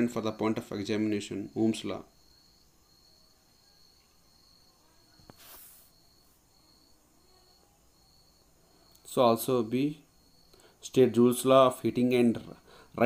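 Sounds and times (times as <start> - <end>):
thin high steady tone: 0.0 - 12.4
brief hiss: 5.2 - 6.3.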